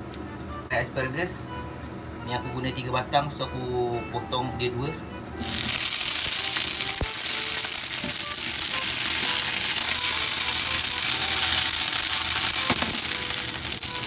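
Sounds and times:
asparagus sizzling in hot oil: 5.4 - 14.0.

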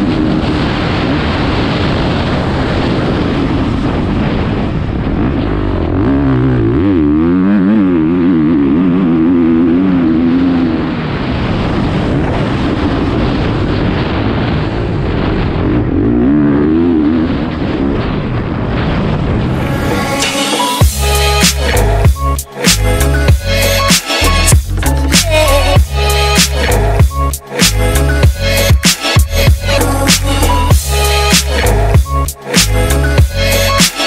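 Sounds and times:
motorbike engine revving: 5.0 - 11.3, 15.4 - 18.4.

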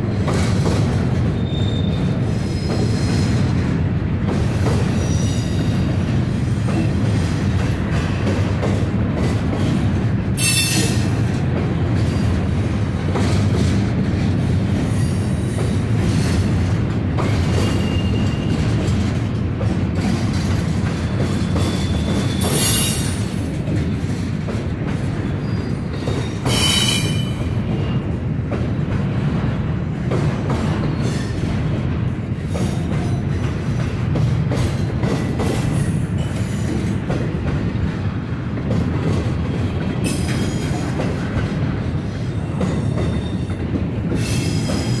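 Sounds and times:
freight train rumbling past: 0.0 - 45.0
wheel squeals: 1.4 - 3.1, 17.5 - 18.7, 21.3 - 23.2.

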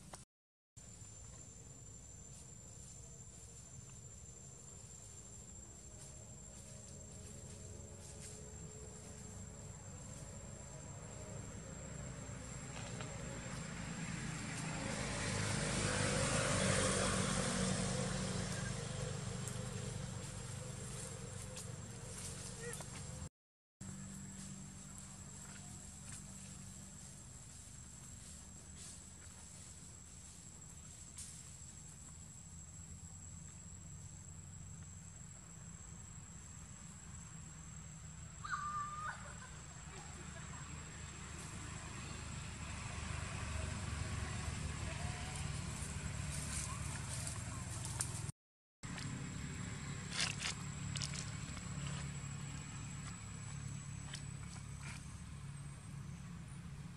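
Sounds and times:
high insect whine: 0.8 - 23.2, 23.8 - 48.1, 49.0 - 56.6
distant engine drone passing: 3.3 - 48.3, 48.9 - 56.9.

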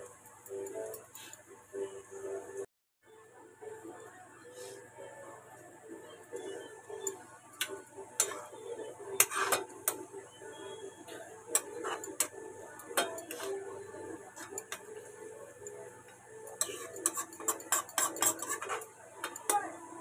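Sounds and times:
metal spatula scraping metal pan: 8.2 - 10.0, 10.6 - 12.4, 13.0 - 13.7, 16.5 - 19.6.

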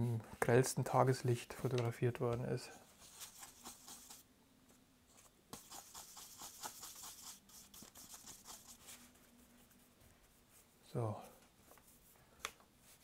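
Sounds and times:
paintbrush scraping on palette: 2.9 - 4.3, 5.1 - 10.7.

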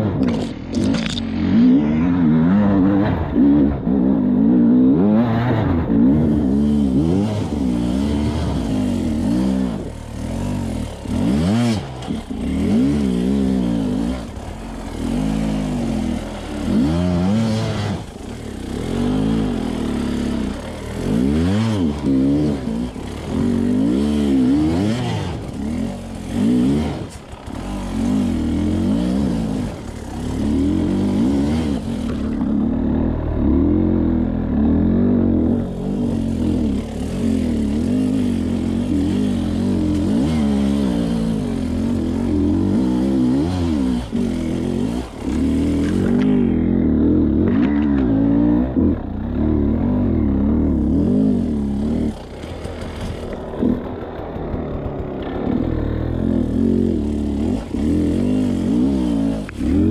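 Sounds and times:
dirt bike engine revving: 0.0 - 59.9
clatter of bike and stones: 0.2 - 2.0, 36.5 - 46.8, 47.4 - 48.6, 51.5 - 59.9.

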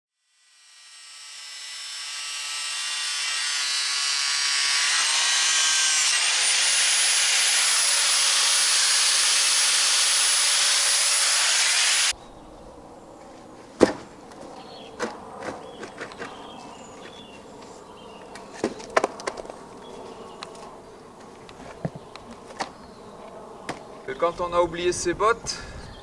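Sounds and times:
power tool grinding: 0.1 - 12.1.

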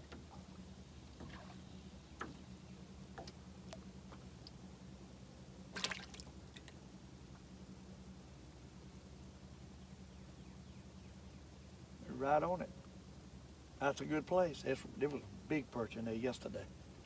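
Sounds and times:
water lapping against boat hull: 0.0 - 4.6, 5.6 - 7.5
faint low hum: 0.0 - 17.0.

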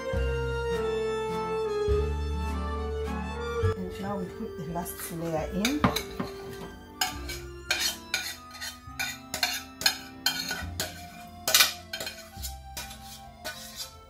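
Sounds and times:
faint background music: 0.0 - 14.0
metal spoon scraping saucepan: 4.8 - 14.0.

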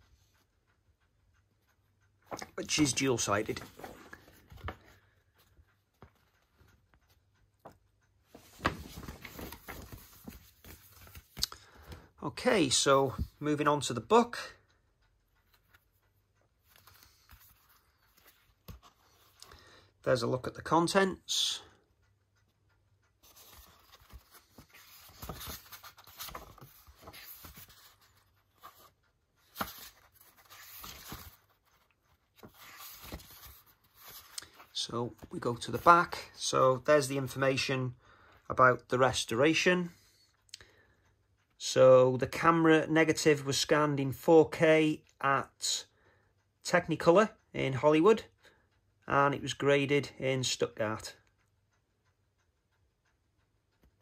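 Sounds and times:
paper rustling and crinkling: 8.3 - 11.5, 23.2 - 35.9.

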